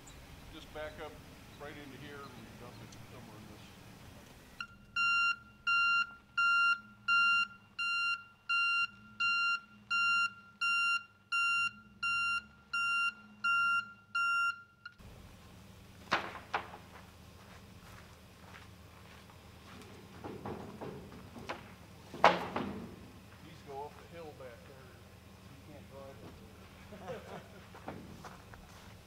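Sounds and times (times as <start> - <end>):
truck reversing alarm beeps: 0.0 - 15.0
sharp knocks: 16.1 - 16.9, 20.2 - 23.0.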